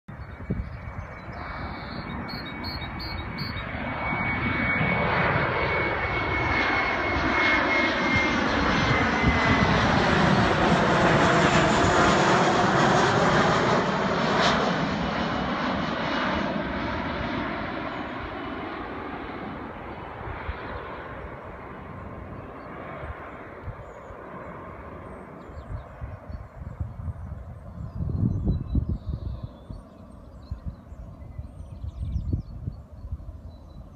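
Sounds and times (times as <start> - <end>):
jet engines passing overhead: 0.1 - 33.9
high whine: 0.4 - 6.2.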